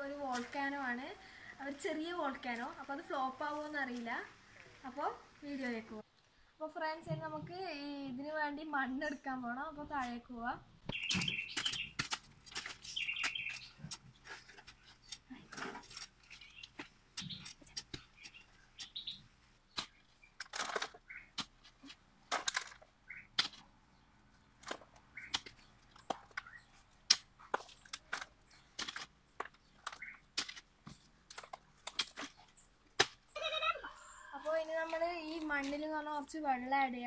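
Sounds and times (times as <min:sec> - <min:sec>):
hoes chopping and scraping soil: 0:00.0 - 0:00.9, 0:10.8 - 0:33.5, 0:34.4 - 0:36.0.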